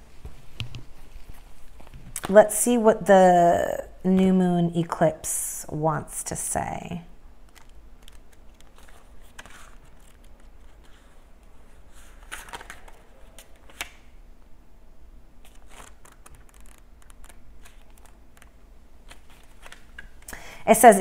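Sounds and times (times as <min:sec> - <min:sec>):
low room hum: 0:00.0 - 0:21.0
cards and paper rustling: 0:07.4 - 0:14.0, 0:15.4 - 0:20.3.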